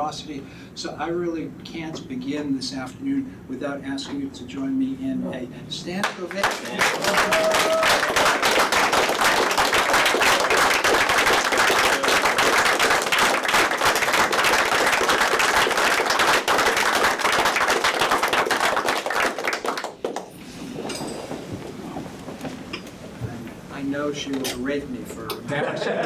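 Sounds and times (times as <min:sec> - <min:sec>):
audience applauding: 0:06.0 - 0:20.4.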